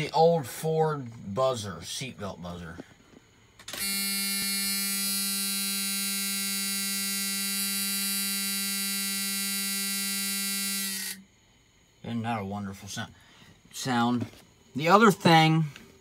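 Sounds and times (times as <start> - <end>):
seatbelt warning buzzer: 3.7 - 11.3.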